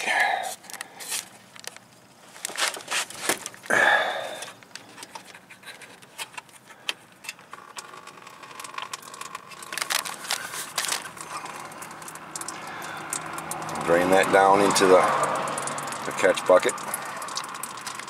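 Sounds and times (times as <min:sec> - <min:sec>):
plastic drain valve clicks and scrape: 0:04.7 - 0:14.0
coolant splashing into bucket: 0:07.7 - 0:18.0.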